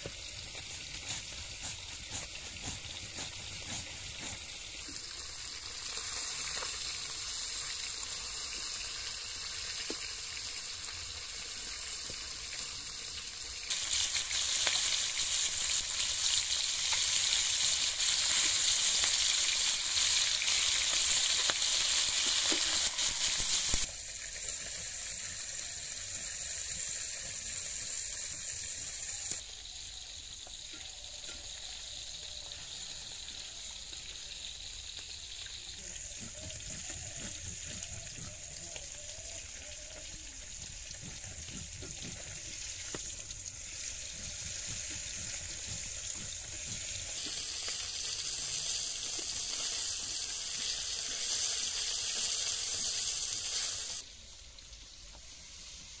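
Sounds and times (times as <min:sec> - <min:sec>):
fish frying in hot oil: 0:00.0 - 0:56.0.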